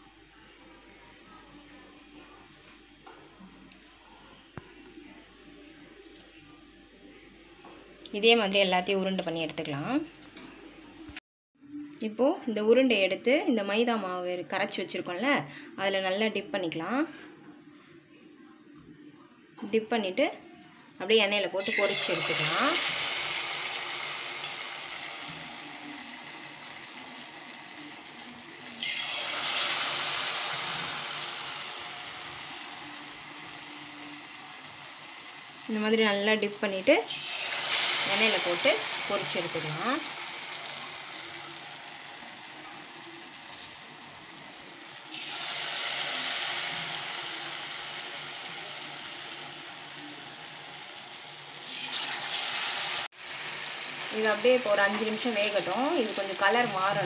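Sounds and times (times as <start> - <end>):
batter balls sizzling in hot oil: 21.6 - 57.0.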